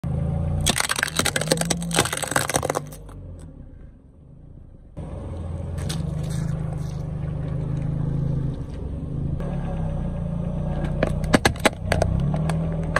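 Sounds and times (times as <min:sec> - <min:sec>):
car engine humming: 0:00.0 - 0:12.9
tyre squashing tomatoes: 0:00.6 - 0:03.1
plastic toys crunching under tyre: 0:00.6 - 0:03.2, 0:11.0 - 0:12.9.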